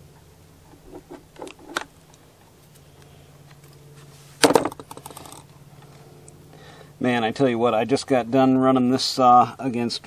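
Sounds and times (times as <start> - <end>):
faint low hum: 0.0 - 10.0
wire strippers clattering on plastic: 4.4 - 5.5.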